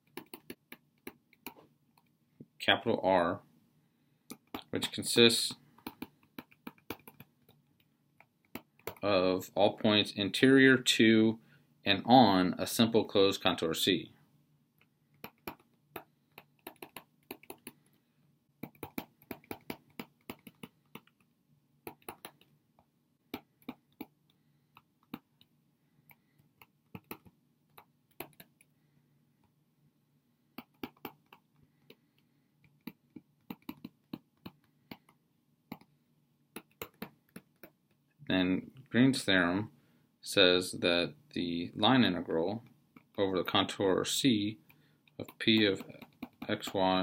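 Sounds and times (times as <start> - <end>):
stylus tapping on tablet: 0.0 - 2.1, 5.8 - 9.0, 14.8 - 17.8, 18.6 - 22.6, 23.3 - 25.5, 26.1 - 28.7, 30.6 - 35.9, 36.5 - 37.8, 45.1 - 46.8.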